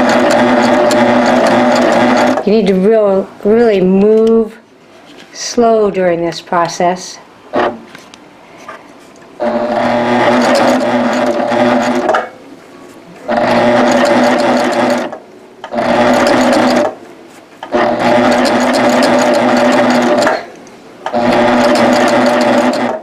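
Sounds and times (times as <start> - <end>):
overlock machine stitching: 0.0 - 2.4, 7.5 - 7.8, 9.4 - 12.3, 13.3 - 17.0, 17.6 - 23.0.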